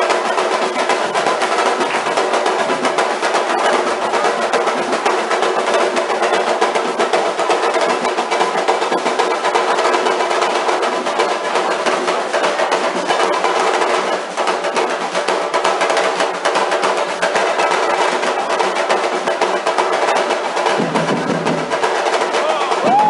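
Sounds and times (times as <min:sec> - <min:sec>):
bass drum line playing: 0:00.0 - 0:23.0.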